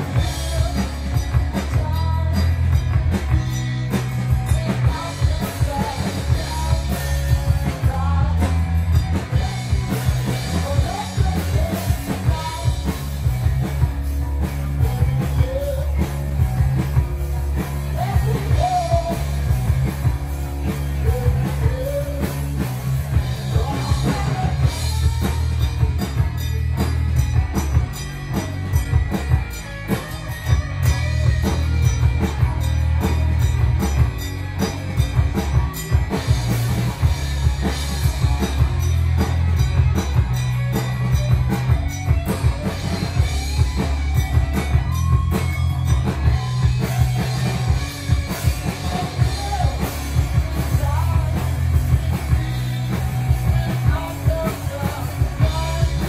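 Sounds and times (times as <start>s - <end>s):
person singing: 0.0s - 2.8s, 4.2s - 13.1s, 14.7s - 19.5s, 20.8s - 22.7s, 23.3s - 26.2s, 48.3s - 56.0s
drum kit: 0.0s - 56.0s
electric bass: 0.0s - 56.0s.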